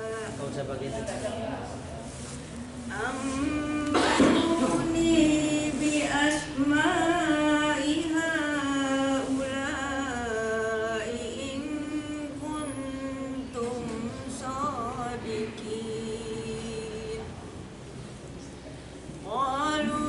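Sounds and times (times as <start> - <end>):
woman chanting a recitation: 0.0 - 1.7, 2.9 - 17.6, 19.2 - 20.0.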